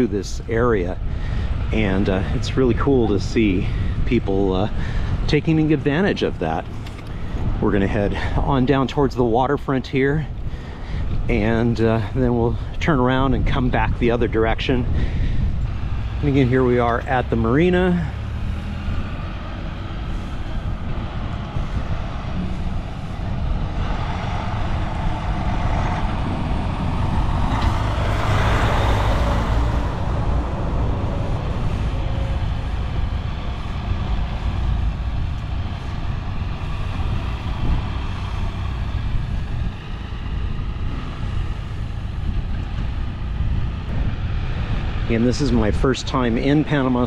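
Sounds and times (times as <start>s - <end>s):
road noise: 0.0s - 47.0s
wind: 0.0s - 47.0s
motorcycle engines running: 14.7s - 47.0s.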